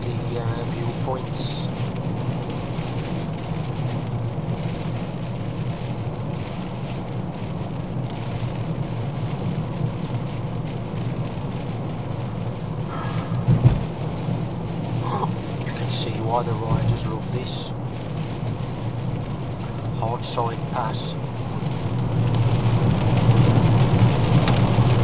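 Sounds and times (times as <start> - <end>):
car cabin road and engine drone: 0.0 - 25.0
rain on a car: 0.0 - 25.0
short thump: 13.4 - 13.8.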